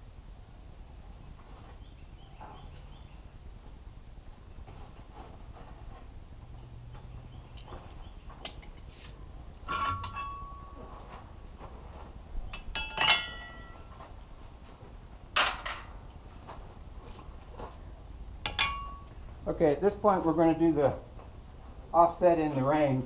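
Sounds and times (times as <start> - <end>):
metal tools clinking: 6.5 - 8.9, 9.6 - 11.2, 12.5 - 14.1, 15.4 - 16.2, 18.4 - 19.8.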